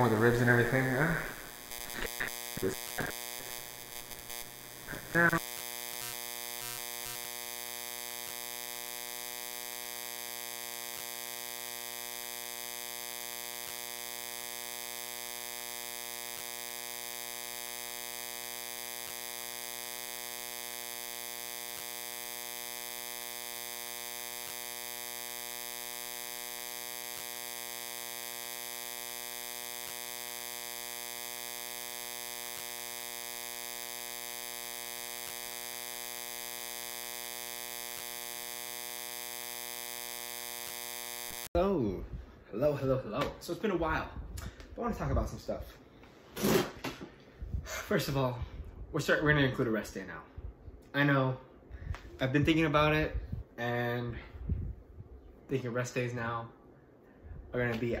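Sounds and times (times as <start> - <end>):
steady electrical buzz: 0.0 - 58.0.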